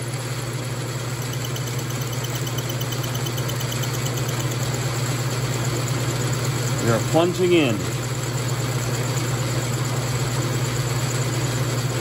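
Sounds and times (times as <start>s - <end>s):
metal lathe motor hum: 0.9s - 12.0s
cutter ticking on metal: 1.2s - 4.8s.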